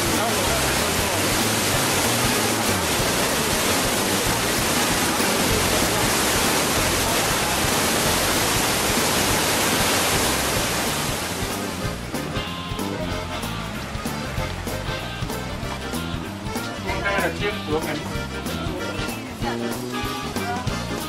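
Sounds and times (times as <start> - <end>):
loud rushing noise: 0.0 - 12.3
music: 0.0 - 21.0.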